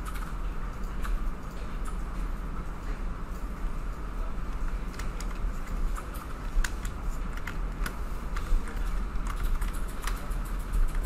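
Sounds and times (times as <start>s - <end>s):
keyboard and mouse clicks: 0.0s - 2.0s, 4.9s - 11.0s
steady low hum: 0.0s - 11.0s.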